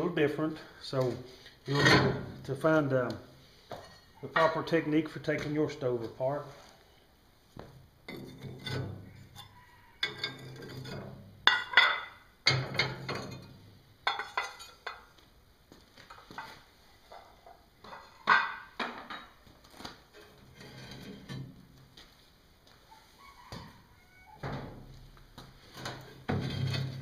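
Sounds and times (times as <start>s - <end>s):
metallic clanks and rattles: 8.1s - 15.1s, 25.8s - 27.0s.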